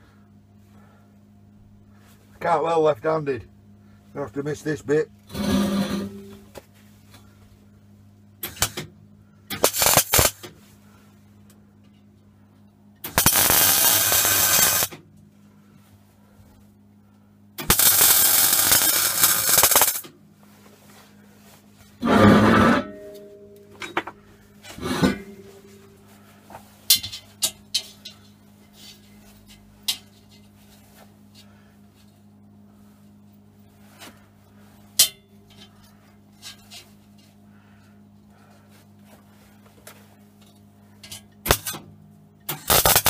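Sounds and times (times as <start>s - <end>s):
steady low hum: 0.0s - 43.0s
welder arc crackling: 9.6s - 10.5s, 13.1s - 15.0s, 17.6s - 20.1s, 42.5s - 43.0s.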